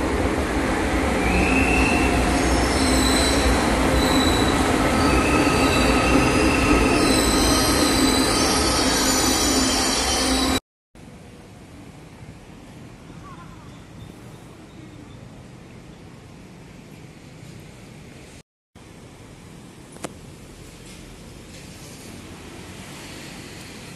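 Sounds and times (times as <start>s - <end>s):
train rumbling into station: 0.0s - 23.9s
high squealing tones: 1.3s - 10.6s.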